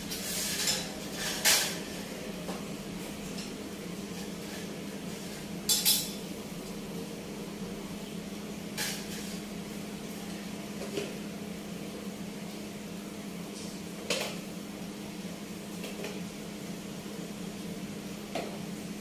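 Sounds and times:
dishes and cutlery clinking: 0:05.6 - 0:06.2.

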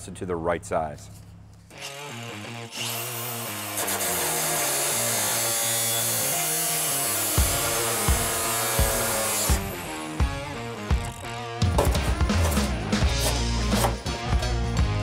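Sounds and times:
cut-off tool high-pitched whine: 0:01.7 - 0:11.4
abrasive wheel grinding sheet metal: 0:01.8 - 0:13.9
background music with steady beat: 0:07.3 - 0:15.0.

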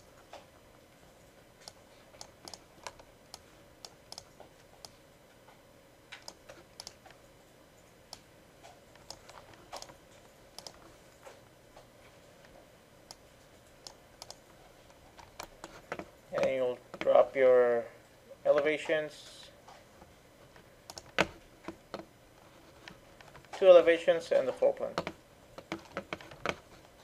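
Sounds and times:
faint steady hum: 0:00.0 - 0:27.0
mouse and keyboard clicks: 0:01.6 - 0:05.0, 0:06.1 - 0:07.2, 0:08.1 - 0:10.0, 0:10.6 - 0:10.9, 0:13.8 - 0:14.4, 0:20.9 - 0:22.1.

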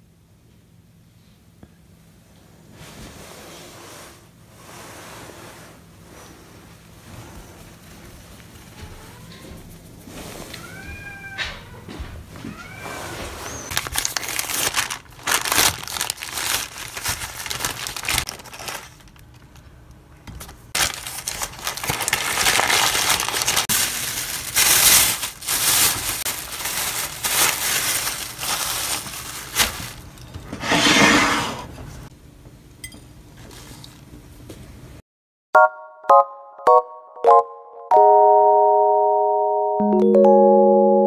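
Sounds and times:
cat meowing: 0:10.5 - 0:13.7
paper wrapper crinkling: 0:13.7 - 0:19.7, 0:20.4 - 0:30.3.

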